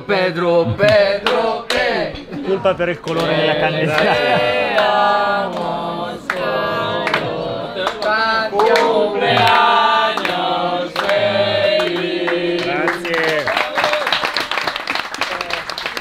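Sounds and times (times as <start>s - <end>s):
group singing together: 0.0s - 13.2s
sharp knocks or claps: 0.8s - 2.3s.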